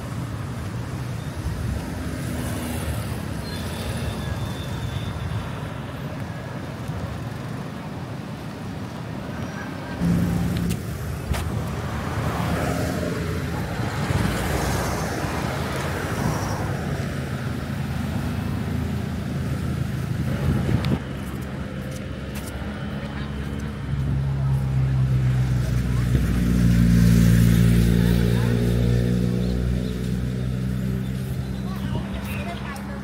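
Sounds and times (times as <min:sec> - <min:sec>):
vehicle engines humming: 0:00.0 - 0:33.0
vehicle passing by: 0:22.7 - 0:33.0.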